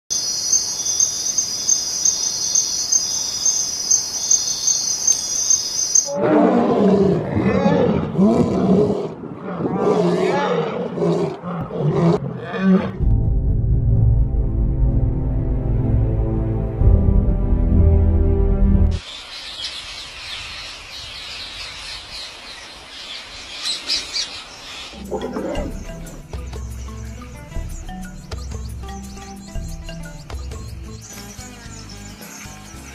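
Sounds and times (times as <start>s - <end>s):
crickets chirping: 0.1s - 6.1s
lion roaring: 6.1s - 13.0s, 24.9s - 26.2s.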